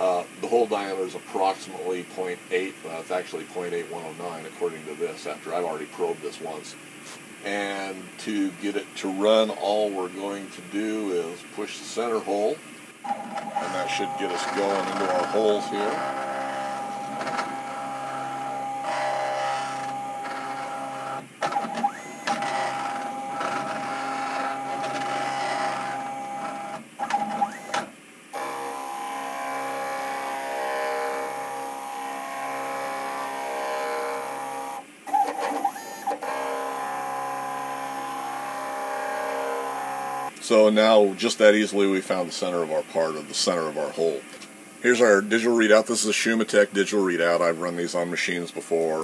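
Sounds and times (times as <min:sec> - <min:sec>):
milling machine motors whining: 0:10.8 - 0:40.4.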